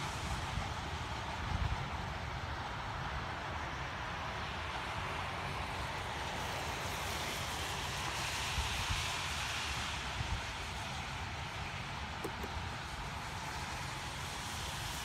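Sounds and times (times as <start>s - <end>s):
distant rumble and hiss: 10.9s - 14.7s.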